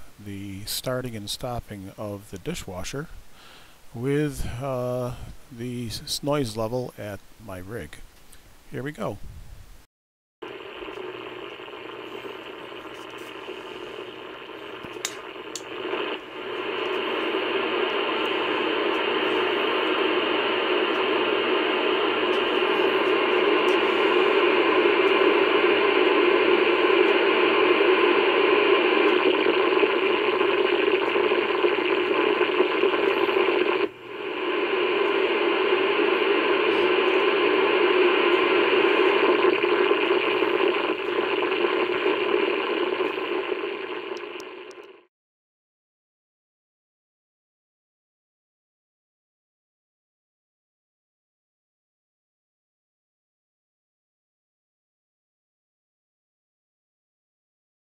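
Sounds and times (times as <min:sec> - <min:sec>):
radio static hiss: 0:00.0 - 0:08.1, 0:08.7 - 0:09.2, 0:10.4 - 0:45.1.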